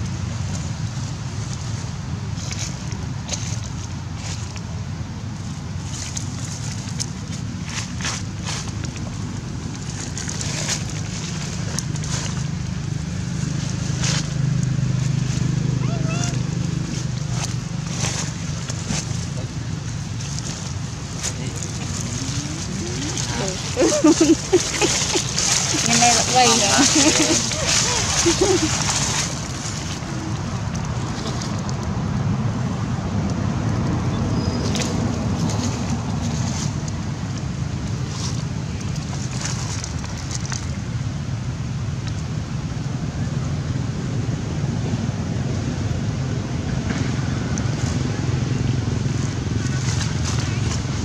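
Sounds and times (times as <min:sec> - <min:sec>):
steady low hum: 0:00.0 - 0:34.3
wind rumbling on microphone: 0:00.0 - 0:51.0
dry leaves crackling and rustling: 0:07.5 - 0:31.6.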